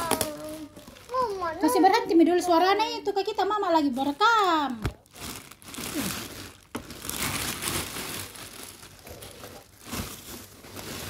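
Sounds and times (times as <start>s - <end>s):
plastic wrap snapping: 0.0s - 1.5s, 4.1s - 11.0s
plastic wrap crinkling: 0.0s - 11.0s.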